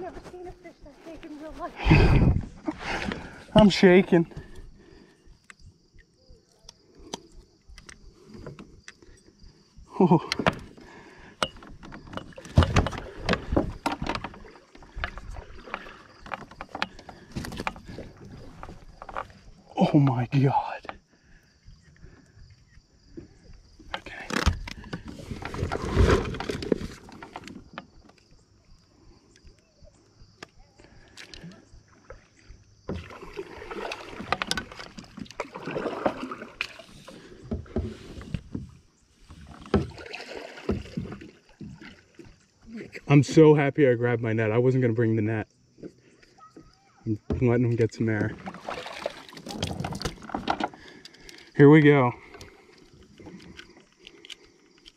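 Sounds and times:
landing net thumping against kayak: 11.5s - 14.4s.

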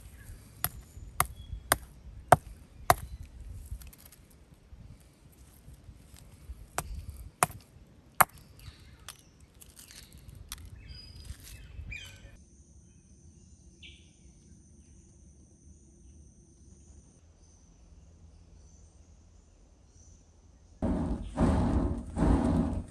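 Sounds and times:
small stones clicking and rustling: 0.3s - 7.6s, 8.2s - 11.6s
hammerstone striking stone anvil: 0.6s - 3.0s.

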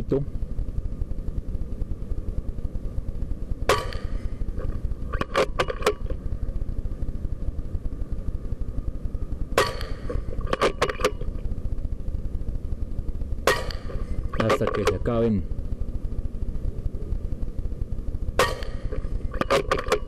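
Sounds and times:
steady low rumble: 0.0s - 20.0s
air rifle shots: 3.6s - 4.4s, 9.6s - 11.1s, 13.4s - 15.0s, 18.4s - 20.0s.

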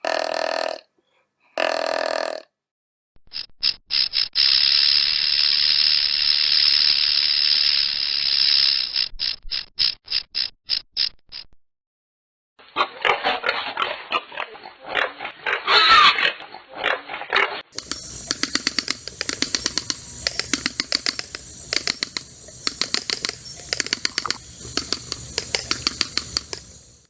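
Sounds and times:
peccary grunts and squeals: 12.8s - 17.6s
rapid sharp clicks: 17.7s - 27.0s.

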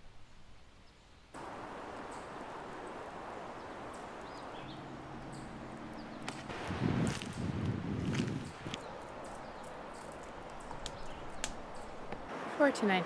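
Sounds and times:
campfire crackling: 1.3s - 12.6s
wind on microphone: 1.5s - 12.3s
bird chirps: 3.6s - 6.5s, 8.8s - 12.2s.

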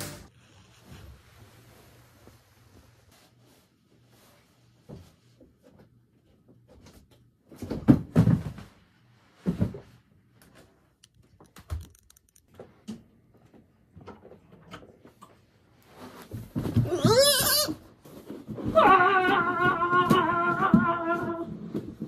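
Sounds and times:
thumps and knocks in room: 4.8s - 10.7s, 16.1s - 17.3s.

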